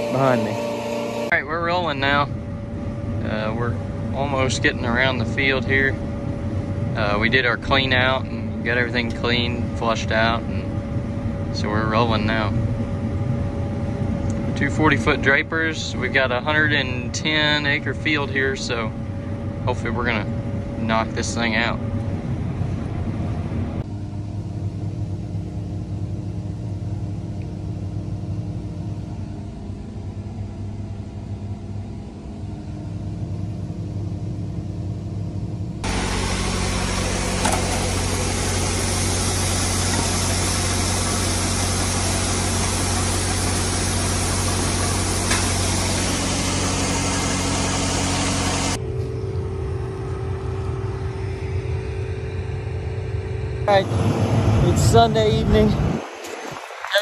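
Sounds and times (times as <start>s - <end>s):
loud rushing machinery noise: 0.0s - 23.9s, 35.5s - 57.0s
combine engine and machinery hum: 0.0s - 57.0s.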